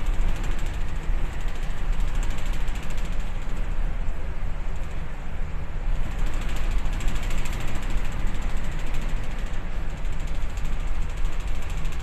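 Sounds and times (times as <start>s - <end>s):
fast mechanical rattle: 0.0s - 3.9s, 6.0s - 12.0s.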